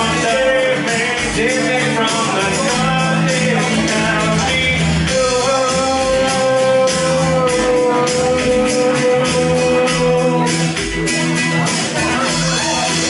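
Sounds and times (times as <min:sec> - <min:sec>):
acoustic guitar strumming: 0:00.0 - 0:13.0
man singing: 0:00.0 - 0:13.0.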